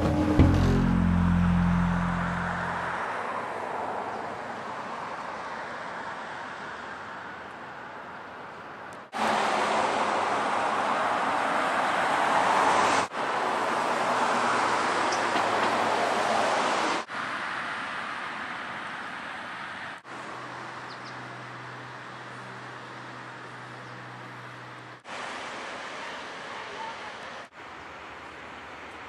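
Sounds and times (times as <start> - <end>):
background music: 0.0 - 3.0
rushing outdoor background noise: 0.0 - 29.0.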